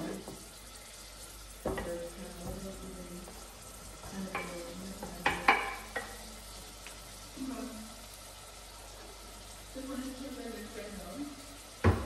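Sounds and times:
vegetables sizzling in pot: 0.0 - 12.0
wooden spoon knocking board: 4.3 - 6.1.

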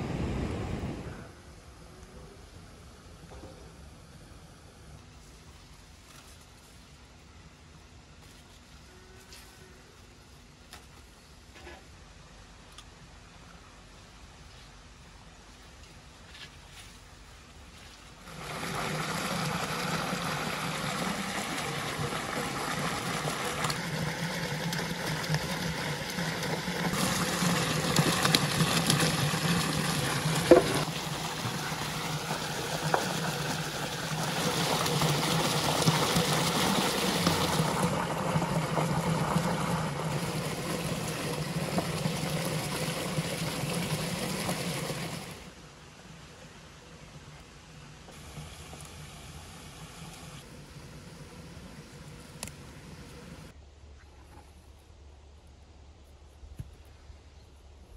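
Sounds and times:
stream running over stones: 17.7 - 53.6
vegetables rinsed in water: 18.2 - 45.4.

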